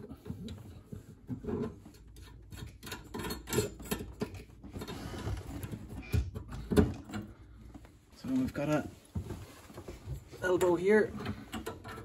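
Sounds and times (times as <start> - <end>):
wrench clicks and scrapes on nut: 1.5 - 5.0.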